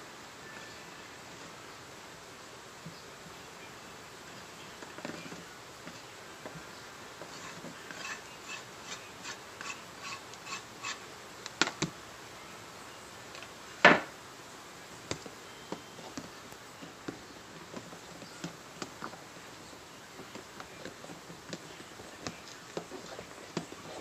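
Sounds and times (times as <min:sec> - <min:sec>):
utensil scraping bowl: 0:07.2 - 0:11.1, 0:20.2 - 0:24.0.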